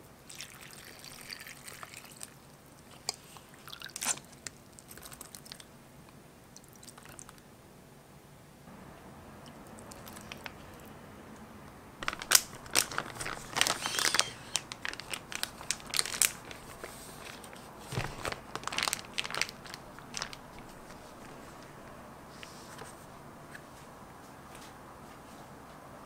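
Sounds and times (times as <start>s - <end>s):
plastic bag crinkling: 9.9s - 10.9s, 12.0s - 21.7s.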